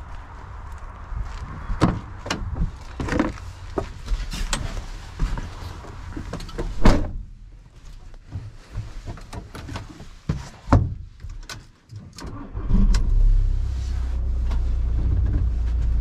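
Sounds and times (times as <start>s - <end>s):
clunks and knocks: 1.8s - 5.5s
van door slamming: 6.6s - 7.3s.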